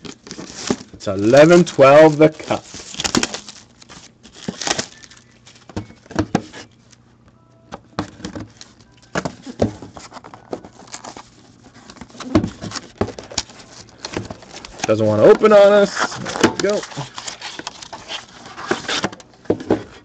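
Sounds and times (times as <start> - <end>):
plastic shrink wrap crinkling: 0.0 - 7.0, 8.5 - 19.0
faint steady hum: 0.0 - 20.0
cardboard scraping and tapping: 11.8 - 20.0.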